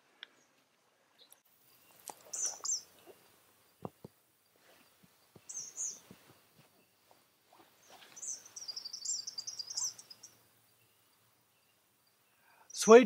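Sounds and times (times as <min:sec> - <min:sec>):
faint rustles and ticks: 0:00.1 - 0:10.4
bird chirping: 0:00.2 - 0:13.0.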